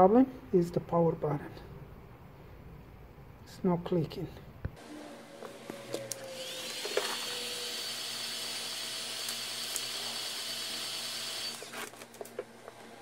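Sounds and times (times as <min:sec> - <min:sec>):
heat gun fan whine and rushing air: 0:04.8 - 0:13.0.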